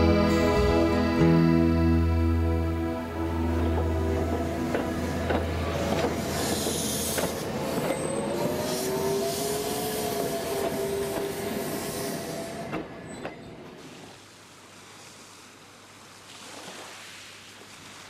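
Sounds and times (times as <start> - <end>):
rail joint clicks: 3.7 - 8.5.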